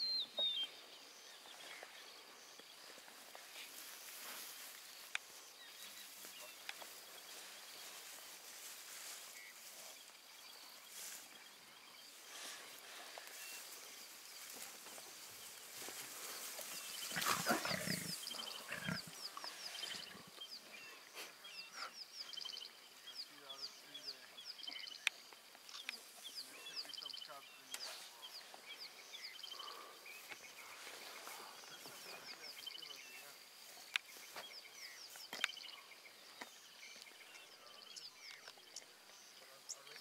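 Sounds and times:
lion cub growling: 17.1 - 20.2.

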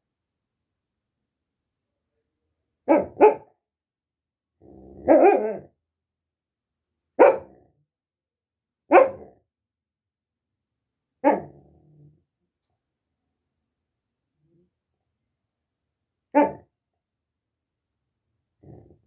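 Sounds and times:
dog barking: 2.8 - 3.6, 5.0 - 5.7, 7.2 - 7.6, 8.9 - 9.4, 11.2 - 11.6, 16.3 - 16.7
dog growling: 4.6 - 5.7, 18.6 - 19.0.

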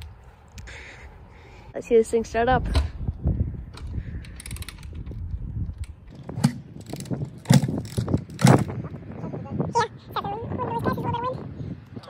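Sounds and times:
dirt bike starter clanking: 5.8 - 8.8.

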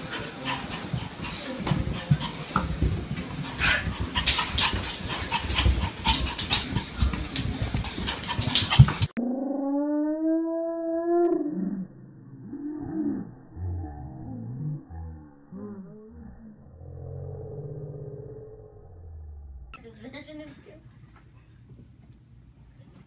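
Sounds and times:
dog paws knocking on stairs: 0.1 - 9.2.

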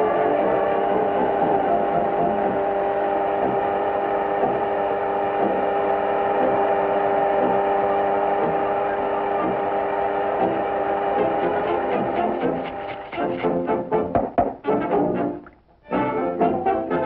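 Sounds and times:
steady droning hum: 0.0 - 17.0
soft beats: 14.0 - 14.7.

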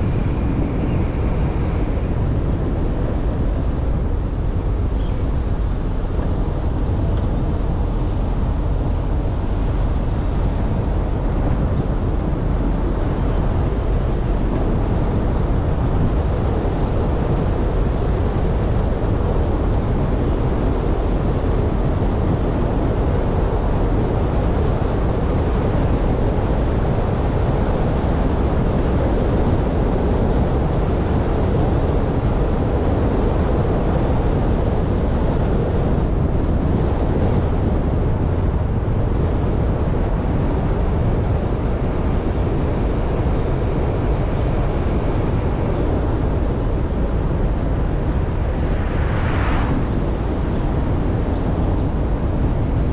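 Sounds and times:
wind noise: 0.0 - 52.9.

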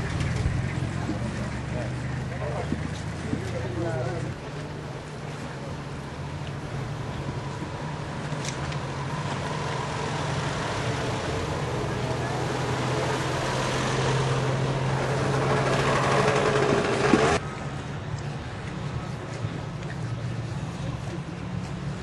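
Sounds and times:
motor scooter passing: 0.0 - 5.6, 7.9 - 17.4
low engine hum: 0.0 - 22.0
car engine passing: 6.9 - 17.5.

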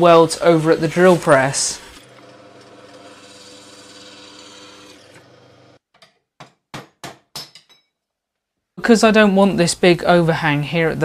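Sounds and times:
cutting strokes on steel: 0.8 - 5.8
drill press motor drilling steel: 0.9 - 5.8.

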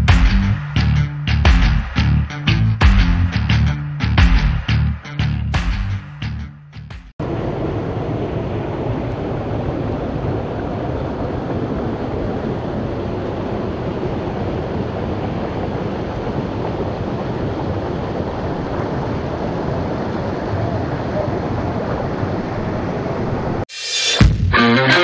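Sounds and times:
waterfall and stream rushing: 7.2 - 23.6.

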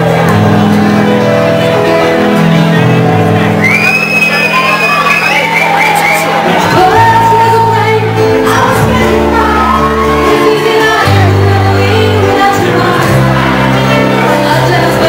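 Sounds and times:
live band playing: 0.0 - 15.0
person singing: 6.5 - 15.0.

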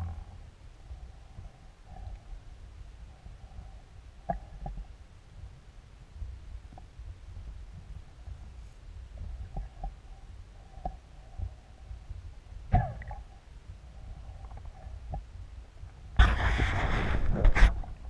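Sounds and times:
underwater rumble: 0.0 - 18.0
faint underwater clicks: 9.1 - 11.9.

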